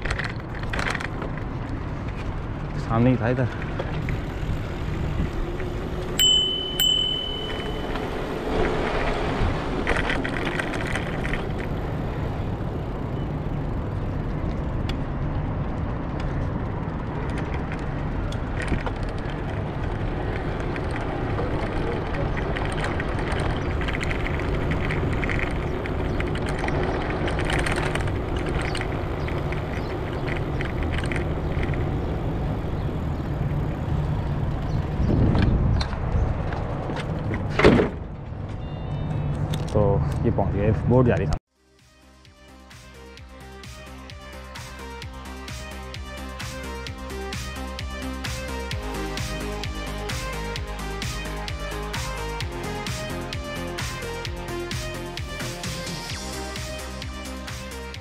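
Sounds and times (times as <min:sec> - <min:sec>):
bicycle tyre and frame noise: 0:00.0 - 0:39.7
short high ring: 0:06.2 - 0:08.1.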